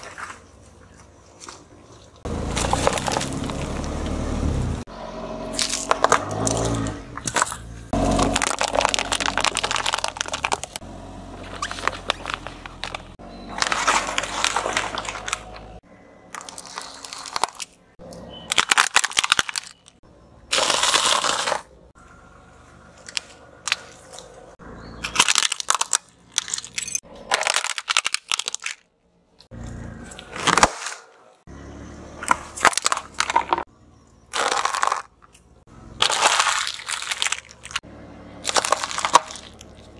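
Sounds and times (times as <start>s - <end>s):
crunching and cracking: 0.0s - 4.2s, 5.5s - 21.9s, 22.9s - 31.5s, 32.2s - 39.9s
objects crushed under car tyre: 2.3s - 4.2s, 5.5s - 17.8s, 18.4s - 21.8s, 25.0s - 28.8s, 30.0s - 31.4s, 32.2s - 33.7s, 34.3s - 35.4s, 36.0s - 39.9s.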